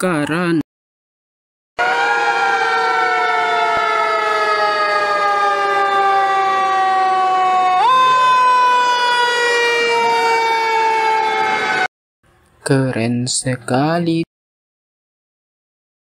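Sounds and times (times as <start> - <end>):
fire engine siren wailing: 1.8 - 11.9.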